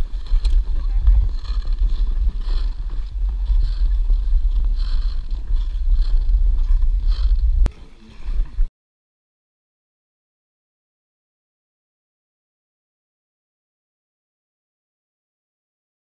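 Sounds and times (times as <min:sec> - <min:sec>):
ice skate blades scraping: 0:00.0 - 0:07.5
wind buffeting microphone: 0:00.0 - 0:08.7.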